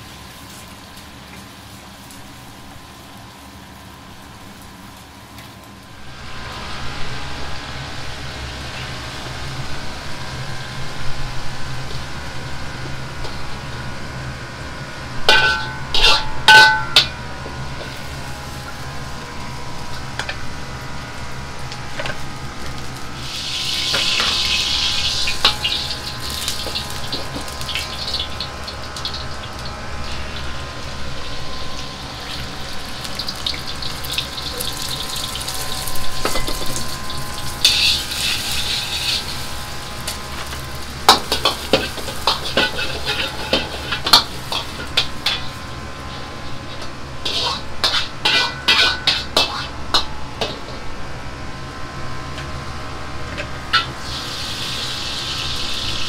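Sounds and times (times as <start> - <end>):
gas burner running: 0.0 - 56.0
hot wok hissing: 5.9 - 50.9, 53.7 - 56.0
eggs sizzling in hot oil: 17.7 - 50.5, 53.7 - 56.0
metal clanks: 47.3 - 50.7.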